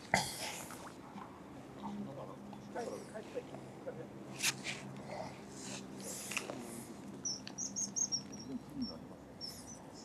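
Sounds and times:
small bird chirping: 0:07.2 - 0:10.0.

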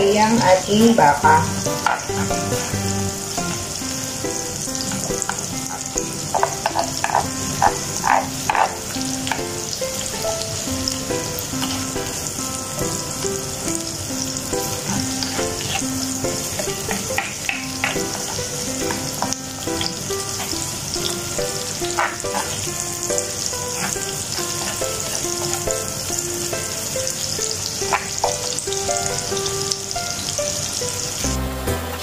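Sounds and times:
faint background music: 0:00.0 - 0:32.0
onion sizzling in hot oil: 0:00.0 - 0:32.0
spatula scraping a pan: 0:01.3 - 0:03.7, 0:04.8 - 0:09.4, 0:11.5 - 0:12.2, 0:14.6 - 0:26.8.

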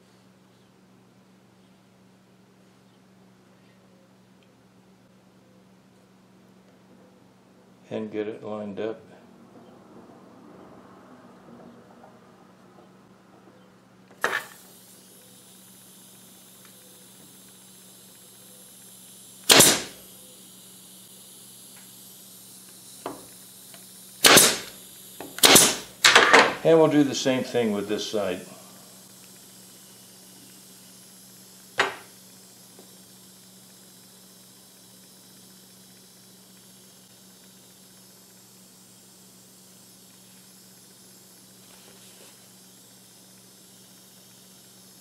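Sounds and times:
air hissing from nail gun: 0:14.2 - 0:45.0.

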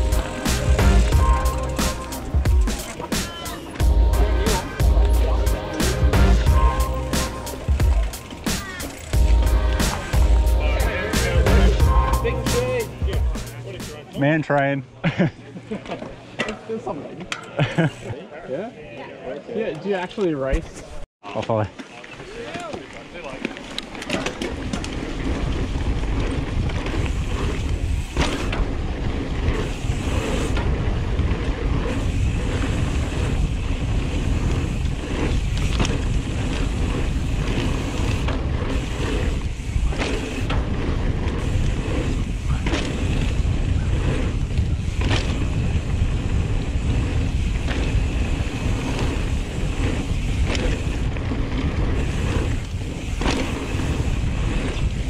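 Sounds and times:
tyres rolling on dirt: 0:00.0 - 0:13.6, 0:20.6 - 0:55.0
bike rattling over bumps: 0:00.0 - 0:13.7, 0:21.9 - 0:55.0
wind on microphone: 0:24.5 - 0:55.0.

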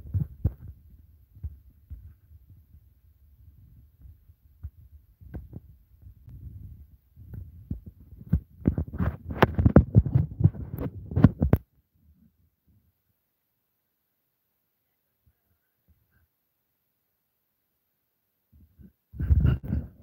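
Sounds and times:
phone microphone handling noise: 0:00.0 - 0:02.3, 0:03.7 - 0:11.7.

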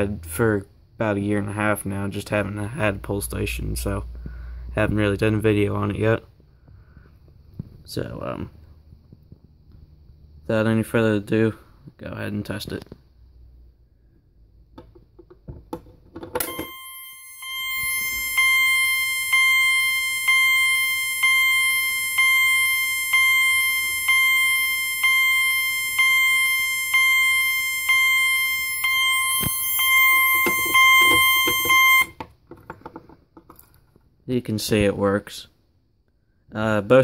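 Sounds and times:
fire alarm chime tone: 0:16.4 - 0:32.2.

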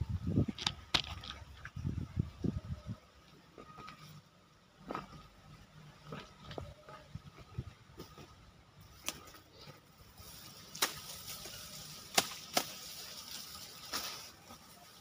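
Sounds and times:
sickle chopping grass stalks: 0:10.2 - 0:15.0.

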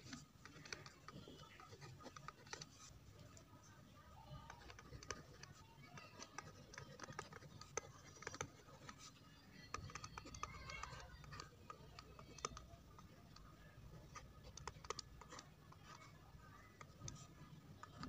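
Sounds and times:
stylus tapping on tablet: 0:04.3 - 0:16.1.

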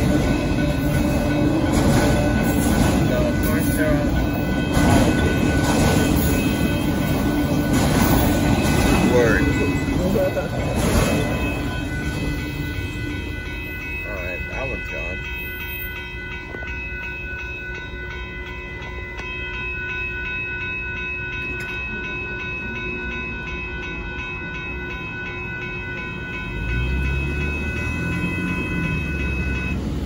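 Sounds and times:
railroad crossing bell ringing: 0:00.0 - 0:30.0
train rumble: 0:00.0 - 0:30.0
car engine: 0:26.6 - 0:30.0.

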